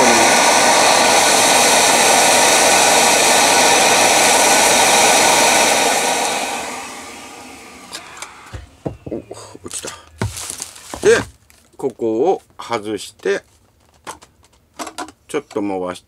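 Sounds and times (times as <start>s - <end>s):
vacuum motor winding down: 0.0s - 9.3s
vacuum cleaner running: 0.0s - 9.5s, 10.1s - 11.3s.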